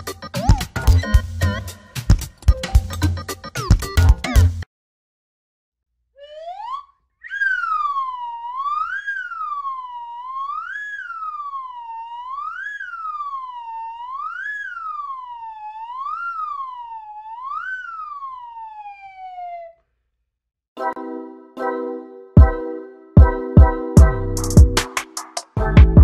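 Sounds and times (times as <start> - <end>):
wailing siren: 6.2 - 19.8.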